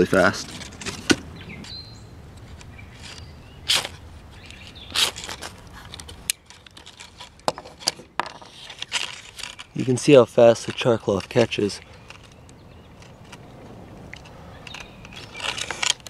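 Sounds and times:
striker scraping ferrocerium rod: 2.4 - 12.4.

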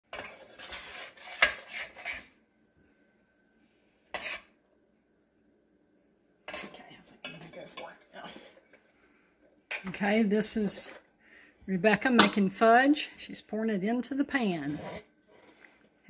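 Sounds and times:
spoon scraping saucepan: 0.1 - 2.4, 4.1 - 4.6, 6.5 - 8.6, 14.6 - 15.5.

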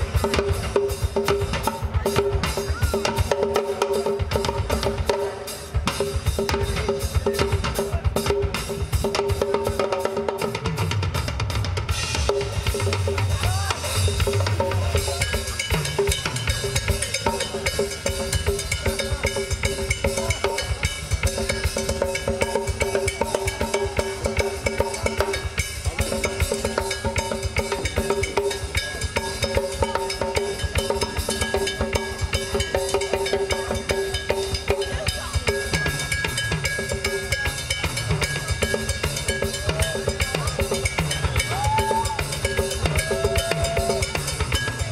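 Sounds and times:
drum kit playing: 0.0 - 44.9
heavy bass drum: 10.6 - 44.9.

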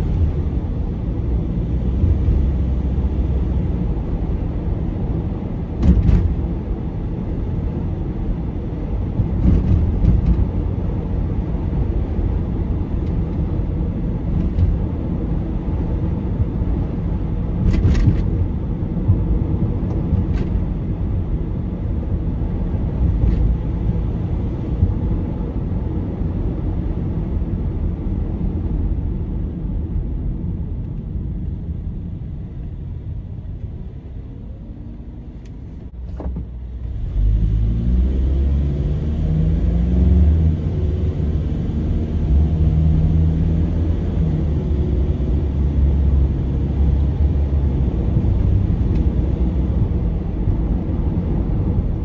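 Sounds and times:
car road and engine rumble: 0.0 - 52.0.

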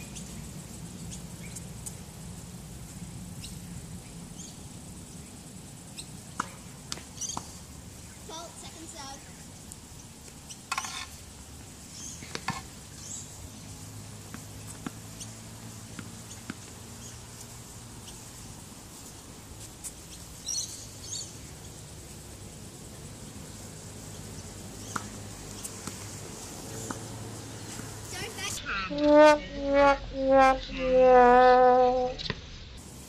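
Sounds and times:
outdoor background noise: 0.0 - 33.0
racket hitting tennis ball: 6.3 - 7.6, 12.2 - 12.7, 15.9 - 16.8, 24.8 - 26.1.

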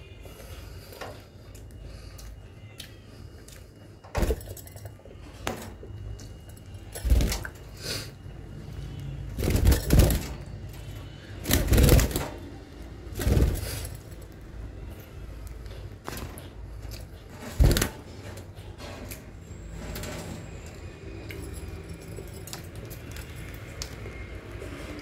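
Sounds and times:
wire bird cage rattling: 9.4 - 10.5, 11.4 - 12.4.

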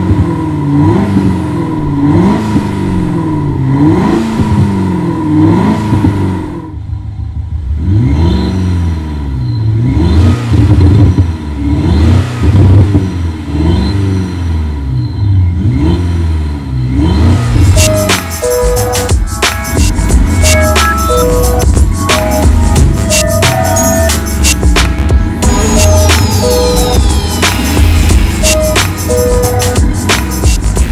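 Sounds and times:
simulated engine revving: 0.0 - 6.9, 7.6 - 30.9.

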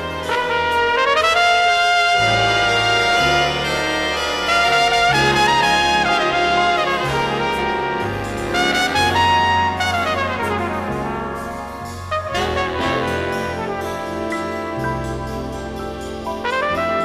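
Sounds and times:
bass accompaniment: 0.0 - 17.0
flugelhorn jazz solo: 0.0 - 17.0.

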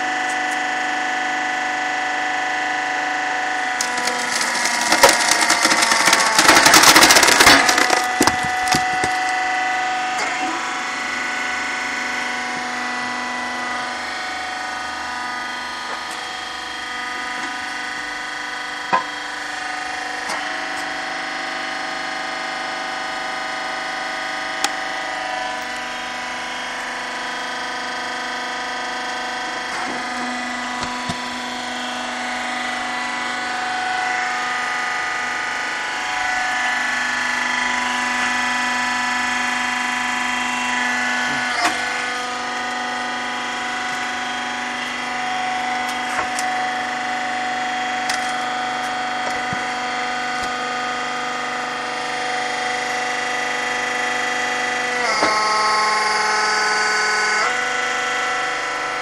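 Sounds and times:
log splitter motor whine: 0.0 - 59.0
wood cracking: 3.8 - 9.4.

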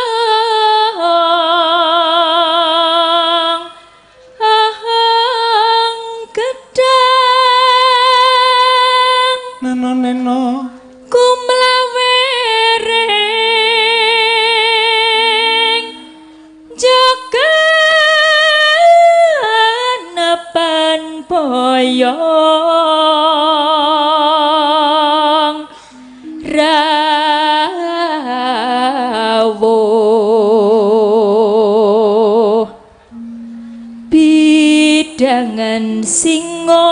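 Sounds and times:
woman singing into a microphone: 0.0 - 36.9
steady low drone note: 33.0 - 35.7.

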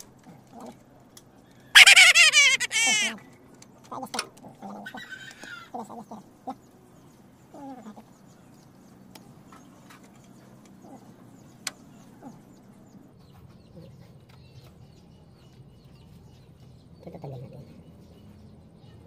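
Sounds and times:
birds chirping: 1.8 - 3.2.

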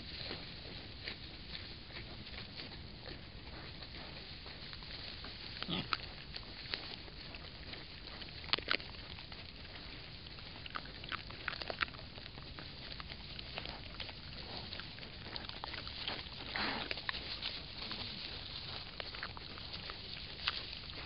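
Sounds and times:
rustling in straw: 0.0 - 21.0.

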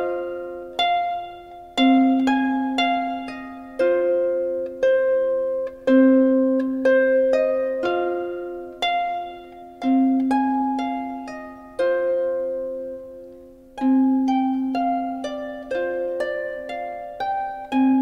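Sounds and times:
plucked string music: 0.0 - 18.0.

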